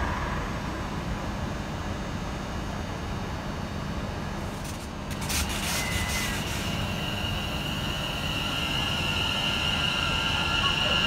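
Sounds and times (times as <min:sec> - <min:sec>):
train rumbling: 0:00.0 - 0:02.2, 0:04.4 - 0:11.0
train motor high whine: 0:05.1 - 0:11.0.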